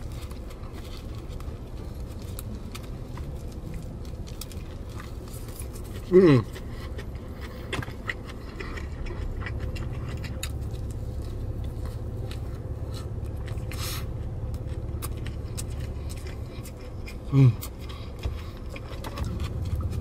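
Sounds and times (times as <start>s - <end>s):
chewing hamburger: 0.0s - 20.0s
car cabin rumble: 18.1s - 20.0s.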